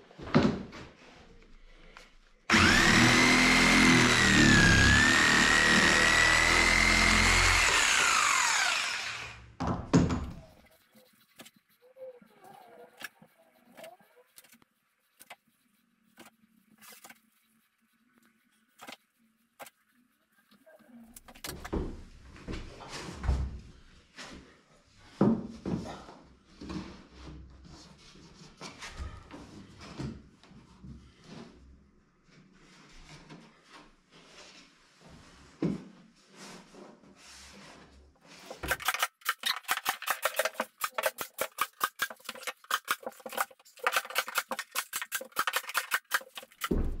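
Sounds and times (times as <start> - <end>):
jigsaw cutting wood: 2.5 - 9.5, 38.6 - 47.0.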